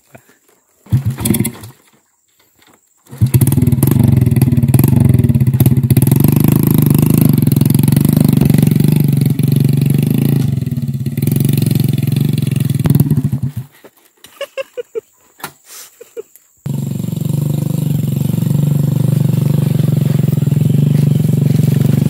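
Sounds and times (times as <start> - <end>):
small motorcycle engine under load: 0.9 - 2.0, 3.1 - 13.8, 16.6 - 22.0.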